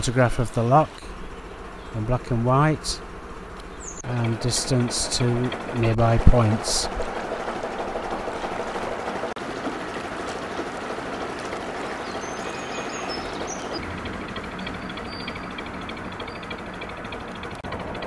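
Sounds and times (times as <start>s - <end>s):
boat engine running: 0.0s - 18.0s.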